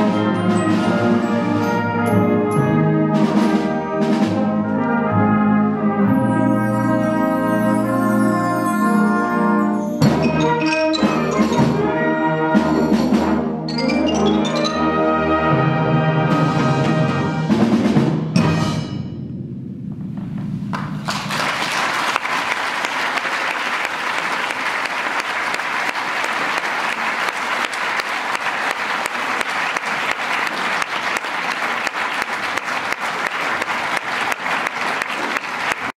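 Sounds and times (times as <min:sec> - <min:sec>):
wind band playing: 0:00.0 - 0:19.2
percussion strokes: 0:06.1 - 0:15.0
audience applauding: 0:20.7 - 0:36.0.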